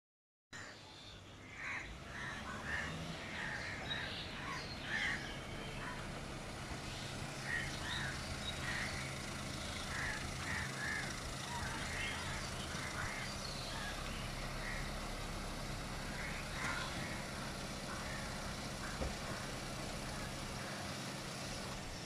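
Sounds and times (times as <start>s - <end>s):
faint low engine hum: 0.6s - 22.0s
crows cawing: 1.6s - 5.4s, 7.4s - 15.4s, 16.0s - 21.0s.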